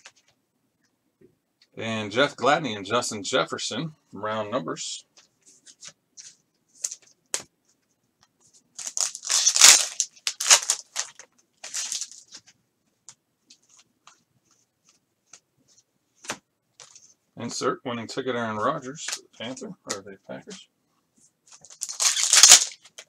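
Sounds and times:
foil wrapper tearing and crinkling: 8.8 - 12.3, 21.6 - 23.0
cards clicking and rustling: 8.8 - 12.6, 21.5 - 23.0.

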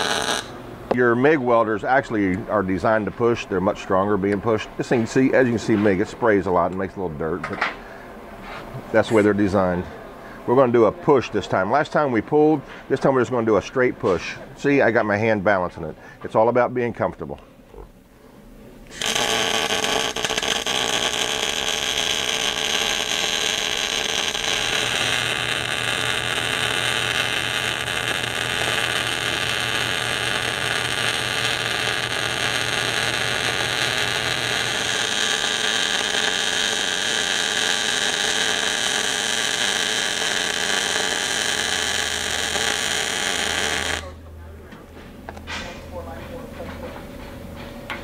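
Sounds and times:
welding arc burning: 0.0 - 0.6, 18.9 - 44.2.

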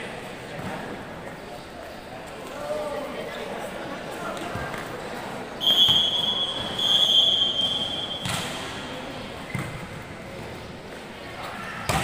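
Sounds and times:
referee's whistle blast: 5.6 - 8.6.

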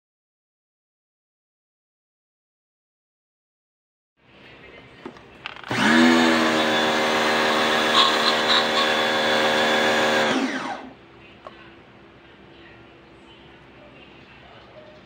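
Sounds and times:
pressure washer motor and pump: 5.6 - 10.9.

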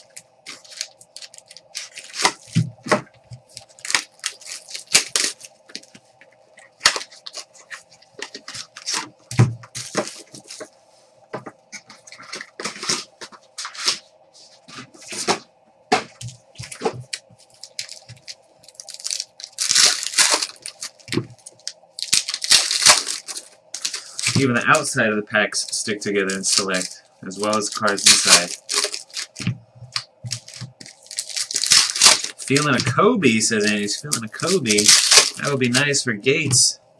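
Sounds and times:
plastic wrappers crinkling and tearing: 0.0 - 6.0, 6.6 - 10.7, 16.6 - 25.0, 25.6 - 36.0
faint steady hum: 0.0 - 36.9.

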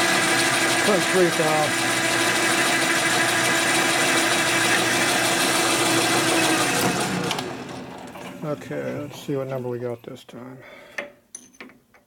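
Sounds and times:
metal lathe whirring: 0.0 - 9.6.

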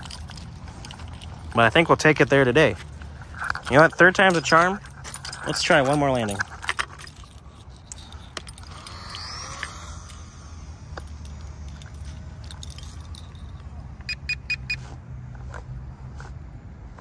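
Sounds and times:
electric motor and propeller whine: 2.8 - 14.1
quick electronic beeps: 14.0 - 14.9.

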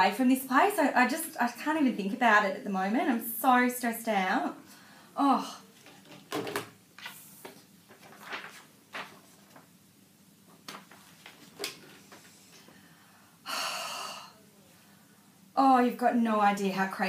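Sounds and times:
paper rustling: 5.7 - 9.8, 10.4 - 12.7.

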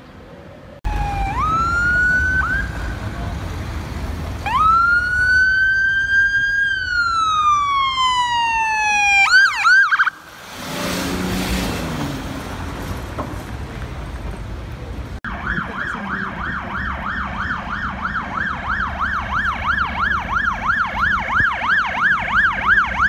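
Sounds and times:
road noise: 0.0 - 23.0
ambulance siren wailing: 0.8 - 3.3, 4.4 - 10.3, 15.2 - 23.0
vehicle engine passing: 0.8 - 21.3.

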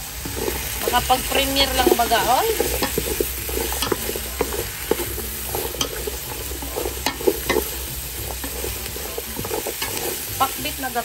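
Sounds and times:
vegetables sizzling: 0.0 - 11.0
wooden spatula scraping a pot: 0.0 - 11.0.

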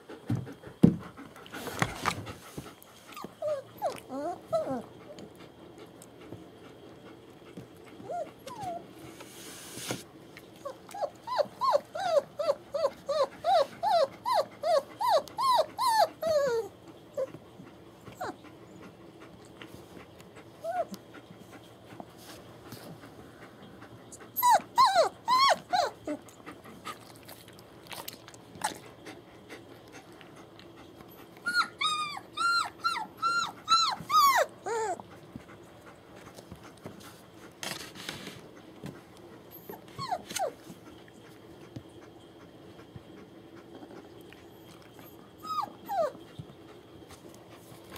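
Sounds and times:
puppies whining and squealing: 3.1 - 5.2, 8.0 - 9.0, 10.6 - 17.4, 18.0 - 18.9, 20.6 - 21.2, 23.8 - 26.4, 31.1 - 35.2, 39.5 - 40.7, 43.6 - 46.9.

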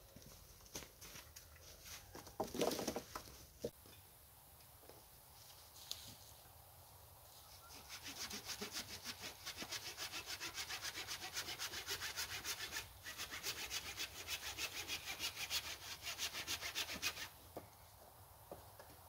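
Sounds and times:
hand saw cutting a log: 7.7 - 17.3.

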